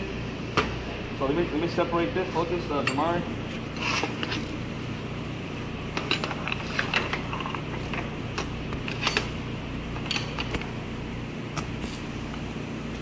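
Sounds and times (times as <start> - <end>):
low shop hum: 0.0 - 13.0
metal parts clinking on workbench: 5.9 - 8.0, 8.8 - 9.4.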